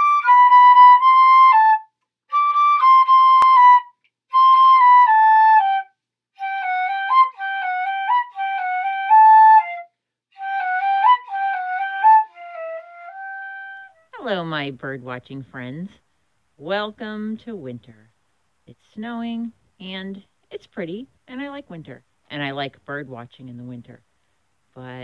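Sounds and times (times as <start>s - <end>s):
solo flute melody: 0.0s - 14.2s.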